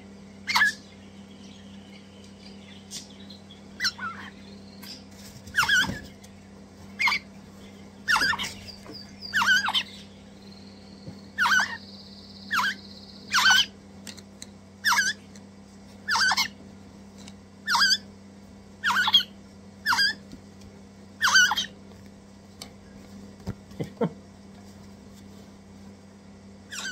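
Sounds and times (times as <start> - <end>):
parrot chicks begging calls: 0.4 - 6.3, 6.9 - 13.8, 14.8 - 15.3, 16.0 - 16.6, 17.6 - 20.2, 21.2 - 21.8, 26.7 - 26.9.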